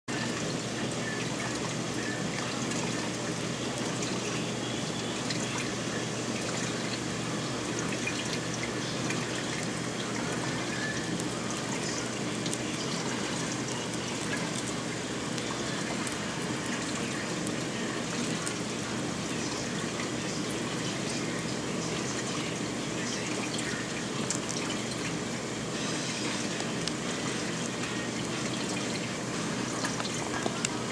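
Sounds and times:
faint low pump hum: 0.1s - 30.9s
running water trickling: 0.1s - 30.9s
small water drips: 0.3s - 25.3s, 26.2s - 30.9s.

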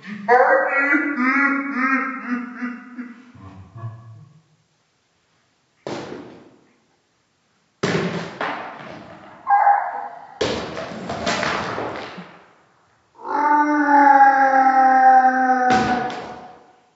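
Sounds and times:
drawn-out voice-like sound: 0.0s - 4.4s.

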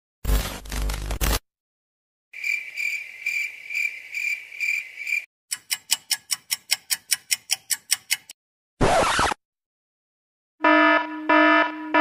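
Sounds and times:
cricket chirping trill: 2.4s - 5.3s
record scratch: 8.8s - 9.4s.

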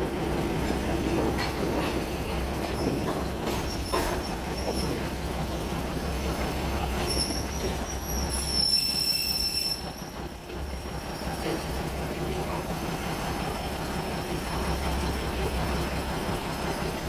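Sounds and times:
train coaches rolling: 0.0s - 17.0s
wheels squealing on rails: 1.4s - 12.4s.

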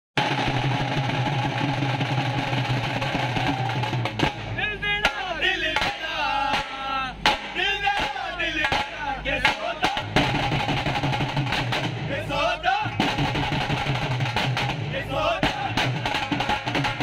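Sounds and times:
dhol drums struck hard: 0.2s - 17.0s
steady noisy hum: 0.2s - 17.0s.

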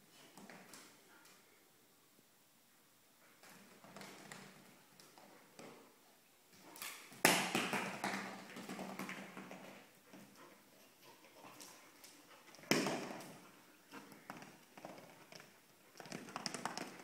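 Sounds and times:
dog claws tapping on tiles: 11.4s - 17.0s.

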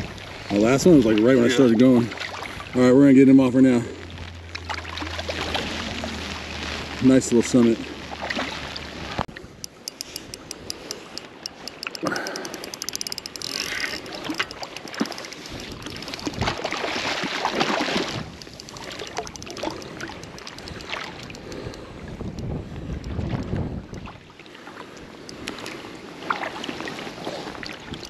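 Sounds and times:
lake water sloshing and trickling: 0.0s - 28.0s
fast small clicks: 9.6s - 16.7s, 17.6s - 24.0s.

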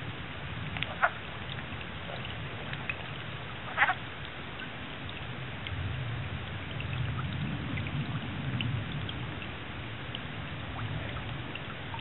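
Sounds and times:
frogs clucking: 0.8s - 4.2s.

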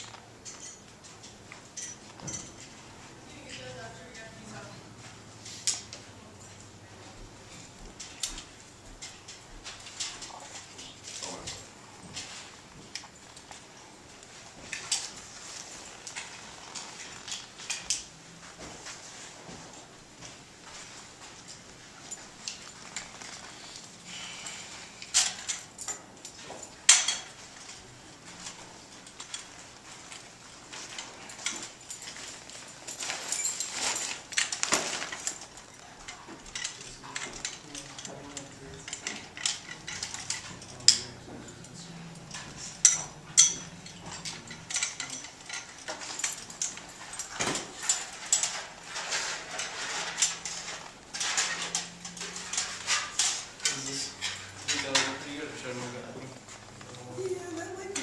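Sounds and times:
metal light stand clinks and clicks: 25.0s - 55.4s.

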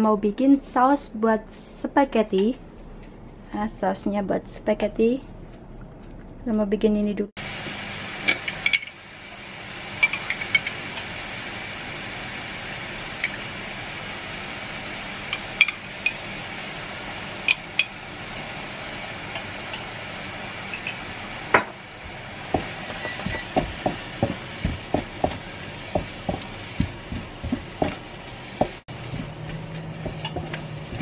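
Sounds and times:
meat sizzling in a pan: 7.4s - 29.3s
glass jar and lid clinking: 8.3s - 9.0s
wooden spatula knocking a pan: 22.5s - 29.4s, 30.0s - 31.0s.

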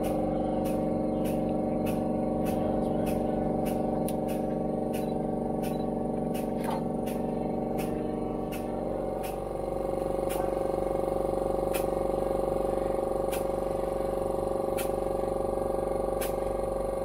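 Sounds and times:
sharp clicks: 0.0s - 9.4s
machine hum: 0.0s - 17.0s.

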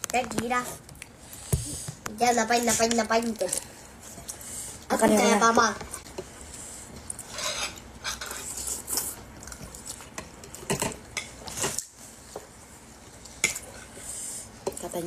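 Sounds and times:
spoon scraping in soup bowl: 7.3s - 8.8s.

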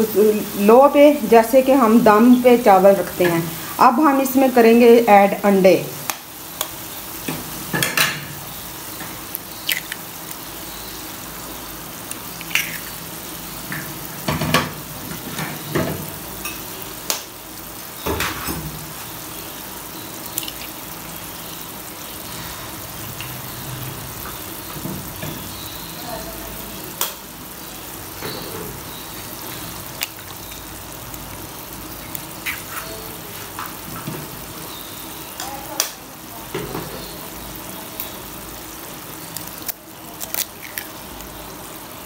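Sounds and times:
food sizzling in frying pan: 0.0s - 42.0s
eggs cracking: 9.6s - 10.4s, 12.0s - 13.0s, 20.3s - 20.8s, 39.4s - 41.0s.

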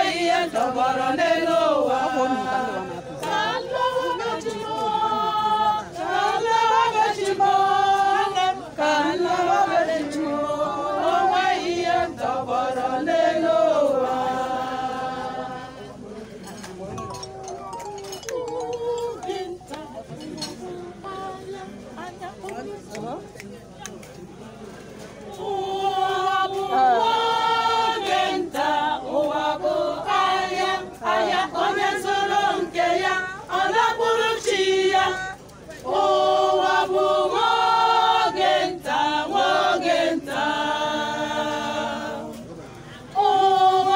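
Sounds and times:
choir singing a cappella: 0.0s - 23.2s, 24.5s - 43.9s.

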